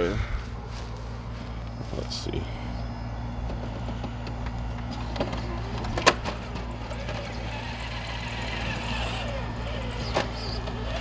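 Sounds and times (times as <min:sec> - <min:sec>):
toy truck electric motor whining: 0:03.7 - 0:11.0.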